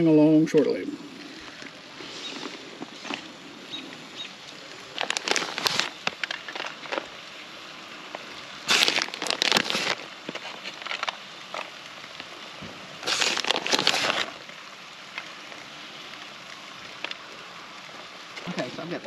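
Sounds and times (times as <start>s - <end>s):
plastic bag crinkling: 4.5s - 7.4s, 8.0s - 18.6s.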